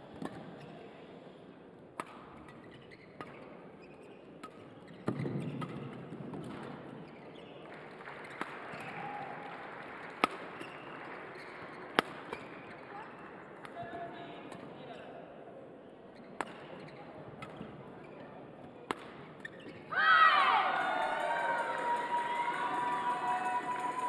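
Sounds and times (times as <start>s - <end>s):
rackets striking shuttlecock: 2.0s - 2.6s, 11.9s - 12.6s, 16.4s - 17.7s, 18.9s - 19.8s.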